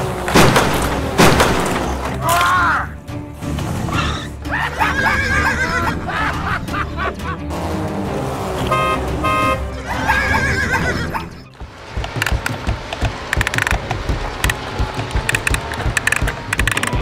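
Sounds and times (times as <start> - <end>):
background music: 0.0 - 17.0
horn sound effect beeps: 7.5 - 10.5
music with clicking beat: 11.4 - 17.0.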